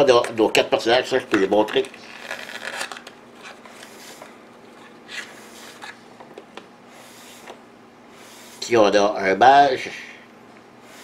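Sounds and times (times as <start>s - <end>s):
cardboard and plastic rustling: 1.6s - 6.0s.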